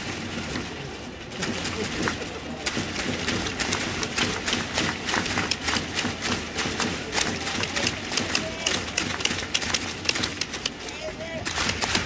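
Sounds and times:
crowd din: 0:00.0 - 0:12.0
crowd clapping in rhythm: 0:02.7 - 0:10.8, 0:11.4 - 0:12.0.

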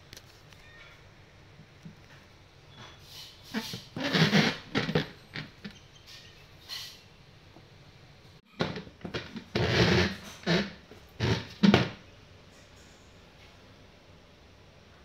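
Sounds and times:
plastic stool scraping on tiles: 0:03.5 - 0:05.8, 0:08.6 - 0:12.0.

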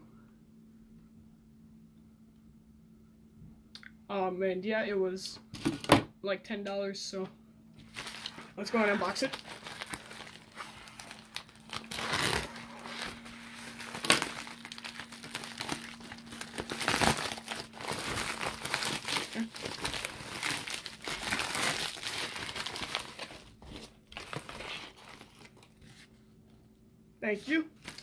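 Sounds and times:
mailer tearing open: 0:07.8 - 0:25.7
bubble wrap crinkling: 0:07.8 - 0:26.1, 0:27.7 - 0:28.0.

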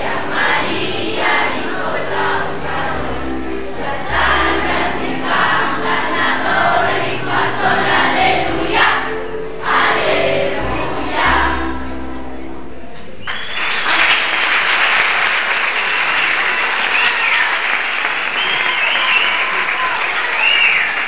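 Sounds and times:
children singing: 0:00.0 - 0:11.9
backing music: 0:00.0 - 0:13.6
audience applauding: 0:13.2 - 0:21.0.

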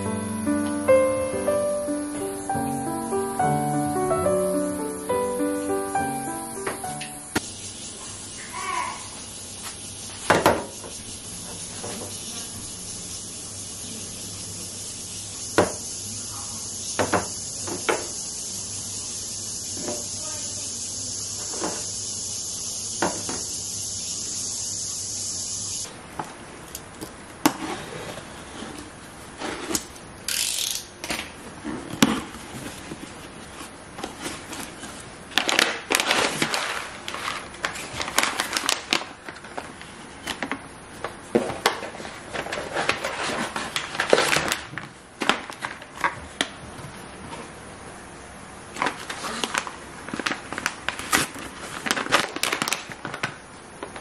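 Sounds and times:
steady hiss with low hum: 0:00.0 - 0:54.0
paper rustling and crinkling: 0:31.7 - 0:46.6, 0:48.7 - 0:53.4.

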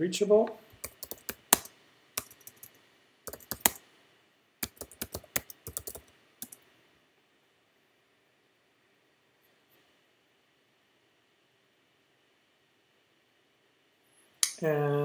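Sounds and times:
computer keyboard keys clicking: 0:00.8 - 0:03.8, 0:04.6 - 0:06.6.

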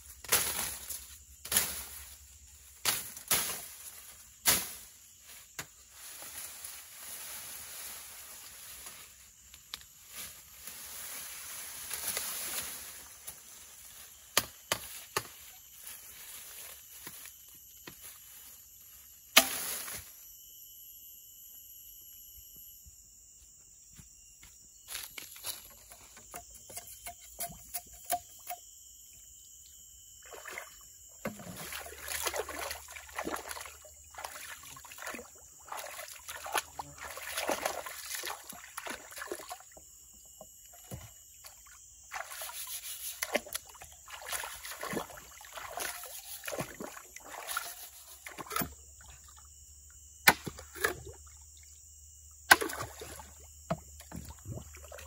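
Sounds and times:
high insect hum: 0:00.0 - 0:55.0
hands splashing water in stream: 0:31.4 - 0:39.7, 0:42.1 - 0:48.6.

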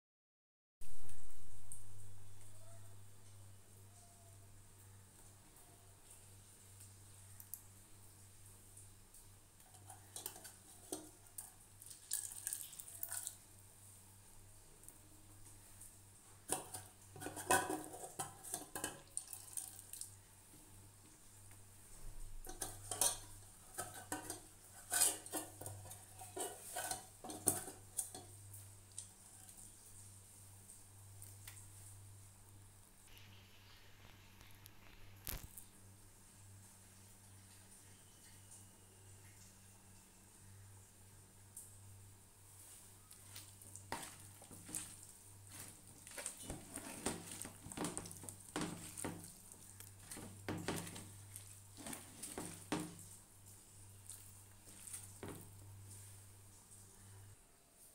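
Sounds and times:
faint low hum: 0:00.8 - 0:57.9
utensils and dishes clattering: 0:09.7 - 0:11.2, 0:16.5 - 0:19.6, 0:22.3 - 0:28.4, 0:43.9 - 0:49.3.

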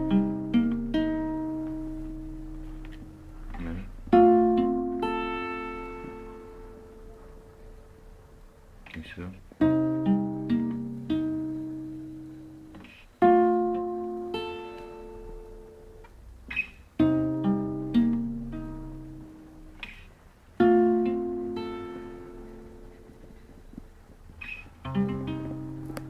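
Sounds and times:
classical guitar chords: 0:00.0 - 0:26.0.

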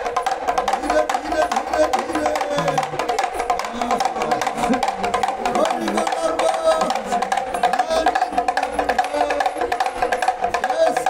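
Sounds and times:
rattle drum rattling: 0:00.0 - 0:11.0.

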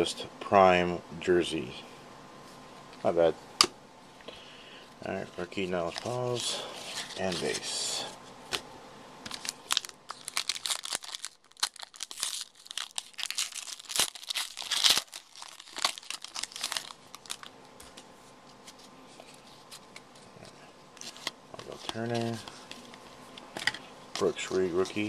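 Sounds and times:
foil wrapper crinkling and tearing: 0:09.2 - 0:17.5.

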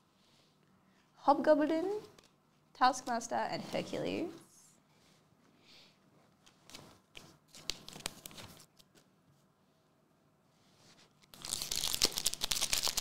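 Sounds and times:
cards tapping and rustling: 0:11.4 - 0:13.0
foil wrapper crinkling: 0:11.4 - 0:13.0.

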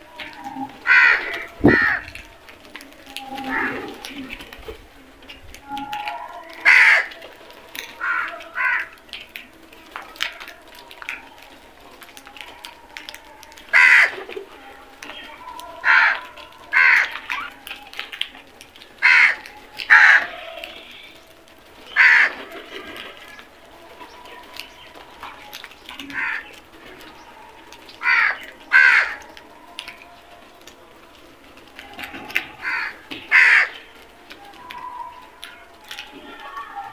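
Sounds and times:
crows cawing: 0:00.8 - 0:02.1, 0:06.6 - 0:07.2, 0:08.0 - 0:09.0, 0:13.7 - 0:14.1, 0:15.8 - 0:17.2, 0:19.0 - 0:20.6, 0:21.9 - 0:22.4, 0:26.0 - 0:26.5, 0:28.0 - 0:29.3, 0:32.6 - 0:33.9.

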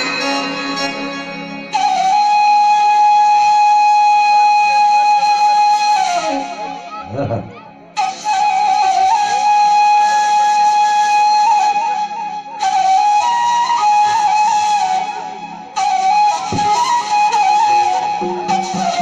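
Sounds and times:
wind instrument folk melody: 0:00.0 - 0:19.0.

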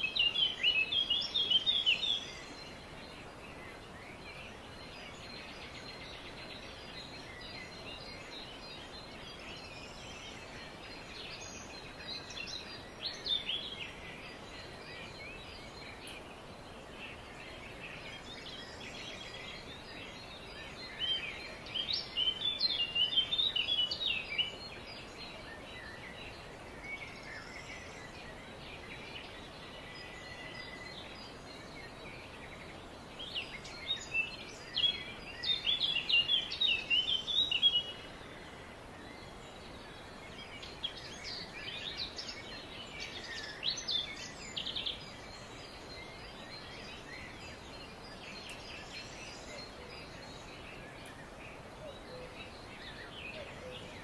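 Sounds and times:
background hiss: 0:00.0 - 0:54.0
songbirds chirping: 0:00.0 - 0:54.0.

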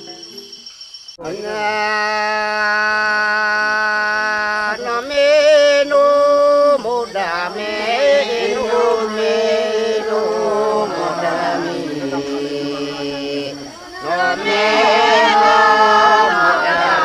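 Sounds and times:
chanted vocal: 0:01.2 - 0:17.0.

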